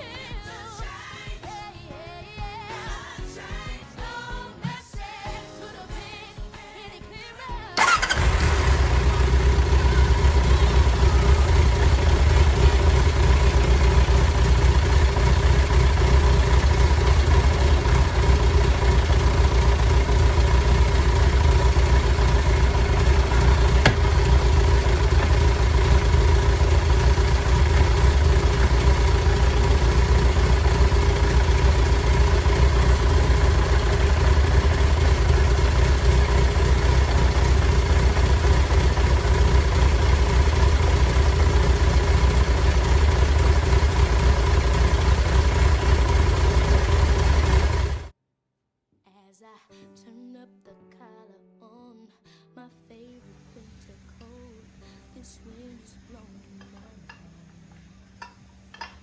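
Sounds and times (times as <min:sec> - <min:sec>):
motorcycle engine idling: 0:07.8 - 0:48.1.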